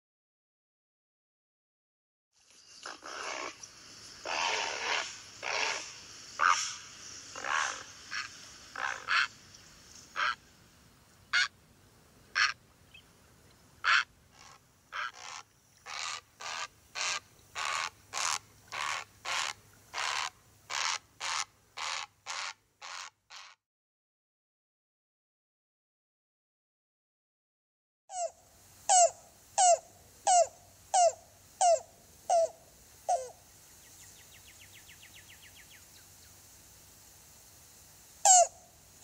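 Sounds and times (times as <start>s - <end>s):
heron squawking: 4.2s - 6.8s, 7.4s - 9.3s, 10.2s - 10.4s, 11.3s - 11.5s, 12.4s - 12.6s, 13.8s - 23.6s.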